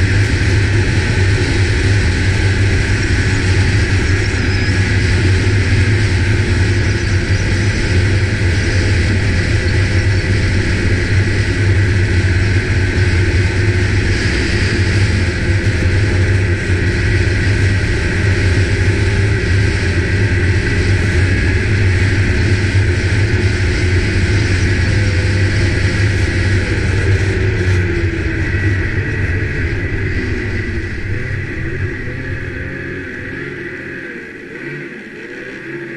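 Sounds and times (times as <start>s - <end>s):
snowmobile engine running: 0.0s - 35.9s
thin steady whine: 0.0s - 35.9s.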